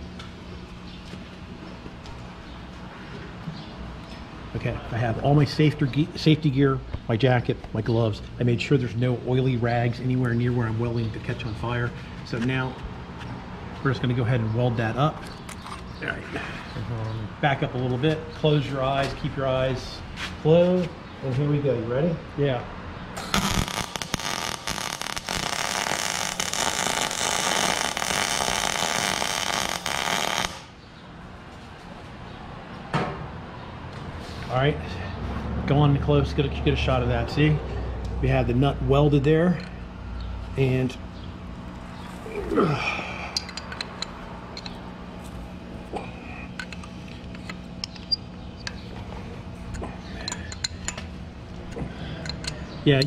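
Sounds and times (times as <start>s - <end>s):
steady low hum: 0.0s - 53.0s
welding arc crackling: 23.2s - 30.8s
wrench clicking on metal: 52.2s - 53.0s.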